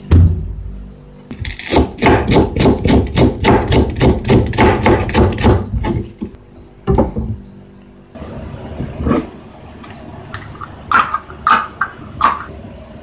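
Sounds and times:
knife chopping on cutting board: 1.4s - 6.1s.

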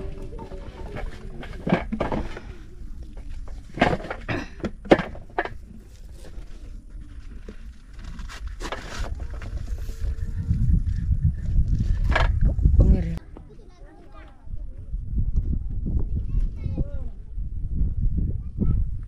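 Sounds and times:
steady low rumble: 0.0s - 13.2s.

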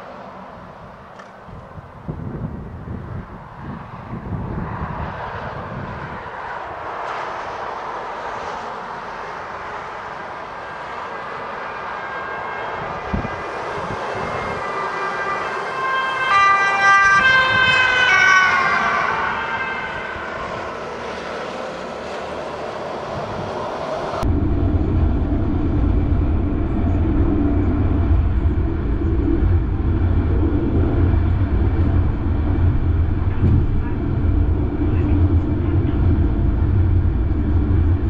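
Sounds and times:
light rail train running: 0.0s - 18.2s, 18.9s - 38.0s
high multi-pitch whine: 24.2s - 38.0s.

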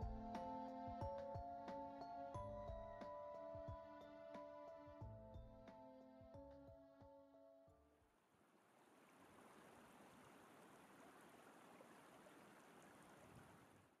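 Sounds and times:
faint flowing stream: 8.2s - 14.0s.

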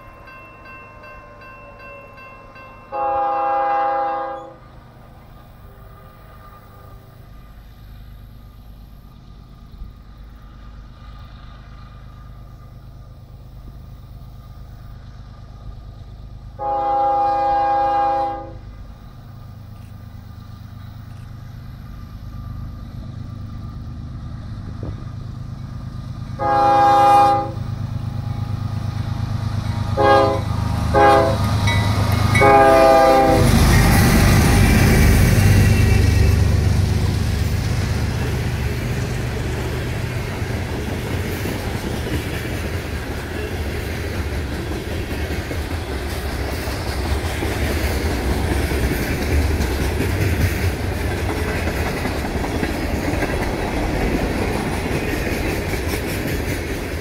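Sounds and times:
train rumbling: 0.0s - 57.0s
train air horn blasts: 2.9s - 4.7s, 16.6s - 18.7s, 26.4s - 27.8s, 29.9s - 34.7s.

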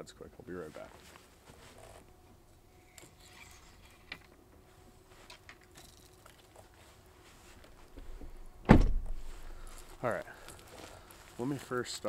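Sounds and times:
loud thump: 8.6s - 9.3s.

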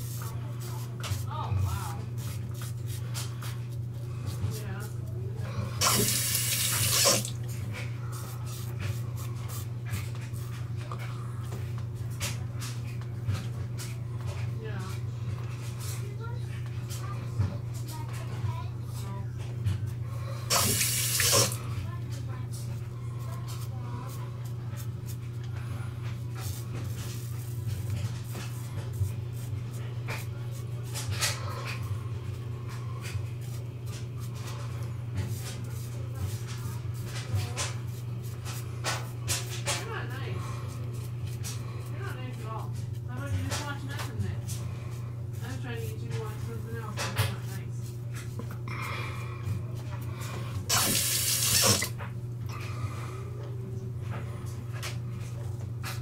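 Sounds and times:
tap water running into sink: 5.8s - 7.4s, 20.5s - 21.6s, 50.7s - 52.0s.

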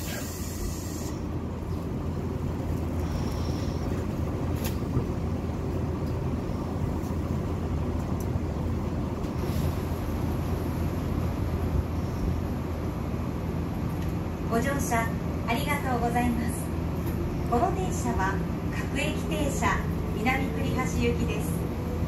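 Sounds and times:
hiss: 0.0s - 1.2s
train car low rumble: 0.0s - 22.0s.

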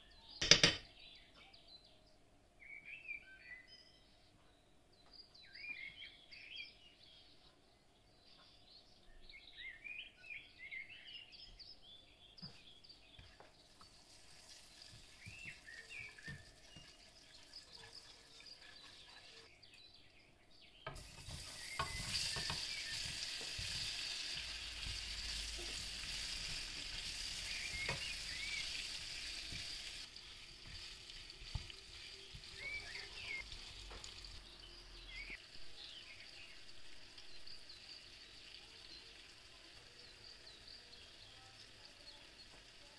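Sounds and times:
birds chirping: 0.0s - 14.0s, 14.6s - 30.8s, 31.4s - 42.9s
frying in a pan sizzling: 13.2s - 19.5s, 20.8s - 42.9s
spatula stirring in pan: 13.2s - 19.5s, 20.9s - 34.2s.

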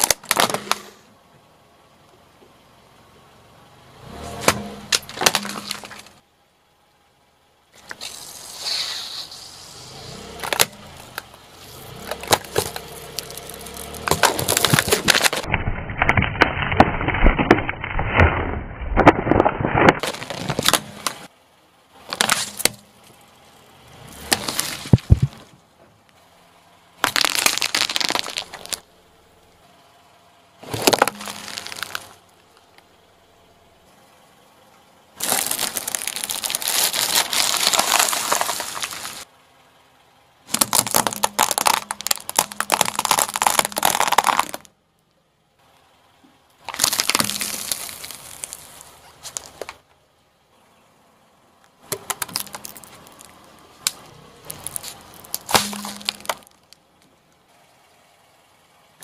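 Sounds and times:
tyre crushing plastic jars: 0.0s - 0.9s, 4.4s - 6.2s, 12.0s - 15.5s, 19.0s - 21.3s, 24.2s - 25.5s, 27.0s - 28.8s, 30.6s - 32.2s, 35.2s - 39.2s, 40.5s - 44.7s, 46.7s - 49.8s, 51.9s - 56.8s.

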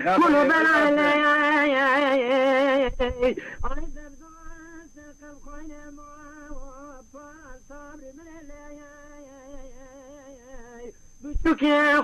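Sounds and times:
person singing unaccompanied: 0.0s - 12.0s.

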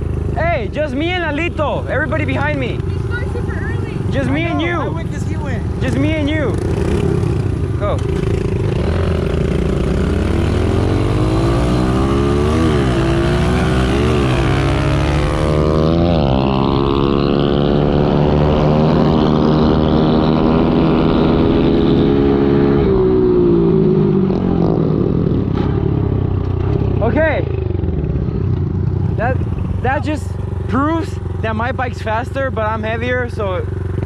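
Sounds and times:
motorbike engine at full throttle: 0.0s - 34.0s.

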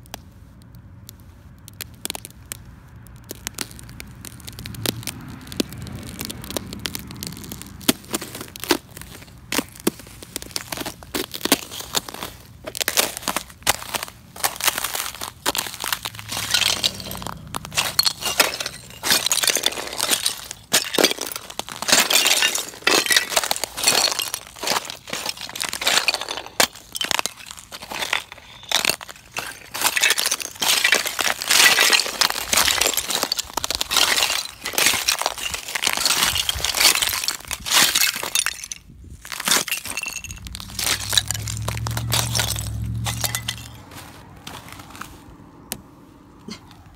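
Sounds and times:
ice cracking underfoot: 1.6s - 45.9s
glassy clinks of ice shards: 16.3s - 32.2s, 39.5s - 43.8s.

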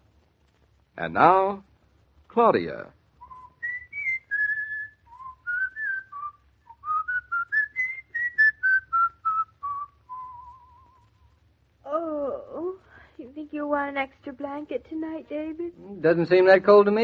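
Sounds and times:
person whistling a tune: 3.2s - 11.1s.

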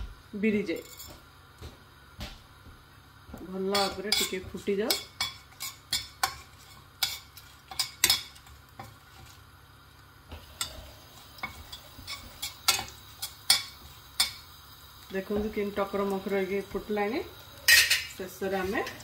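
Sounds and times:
oil sizzling: 0.1s - 19.0s
metal spoon stirring in pan: 3.7s - 9.5s, 10.4s - 19.0s.

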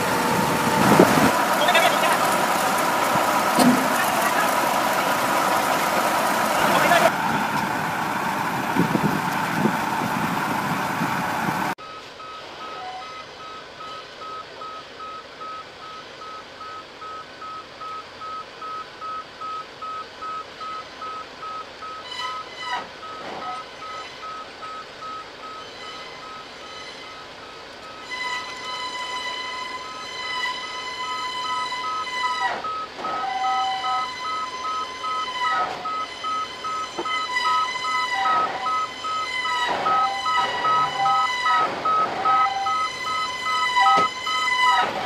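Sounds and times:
vehicle motion alarm beeping: 0.0s - 7.7s, 11.8s - 45.0s
richer-toned beeper: 11.8s - 44.8s.

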